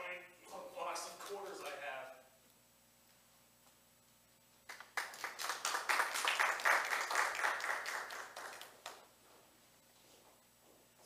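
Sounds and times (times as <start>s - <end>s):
audience applauding: 4.7s - 9.1s.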